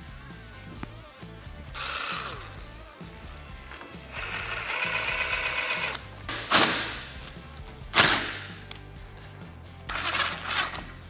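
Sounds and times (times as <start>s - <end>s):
cordless driver driving a bolt: 1.8s - 7.4s.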